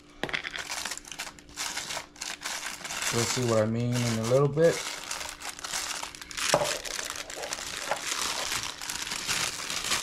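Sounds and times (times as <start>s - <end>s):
plastic packet crinkling: 0.4s - 10.0s.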